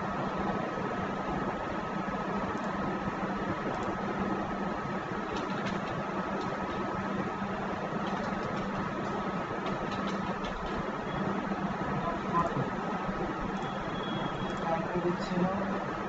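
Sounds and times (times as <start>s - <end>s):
keyboard clicks: 3.7s - 4.0s, 5.3s - 6.8s, 8.0s - 10.8s.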